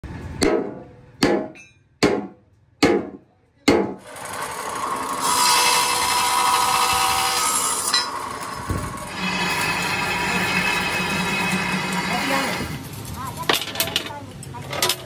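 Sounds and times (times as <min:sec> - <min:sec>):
chop saw cutting steel: 0:04.0 - 0:12.8.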